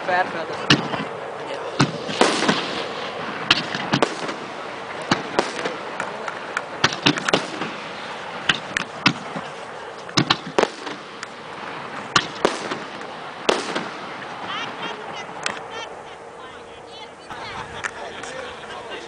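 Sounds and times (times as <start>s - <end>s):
background hiss: 0.7s - 17.2s
fireworks bangs and pops: 1.8s - 15.6s.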